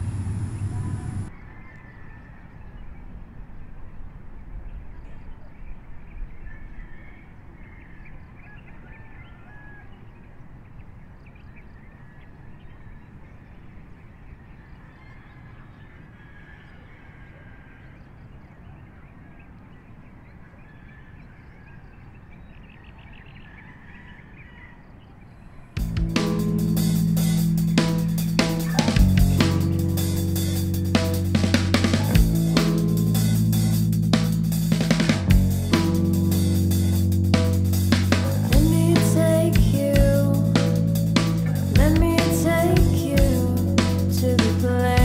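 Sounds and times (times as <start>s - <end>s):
steady low rumble: 0.0s - 1.3s, 25.8s - 45.0s.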